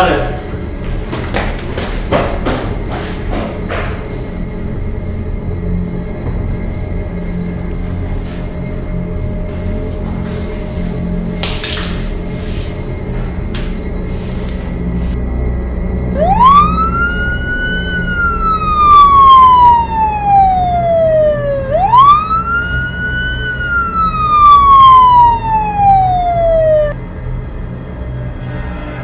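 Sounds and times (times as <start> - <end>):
police siren wailing: 16.1 - 27.0.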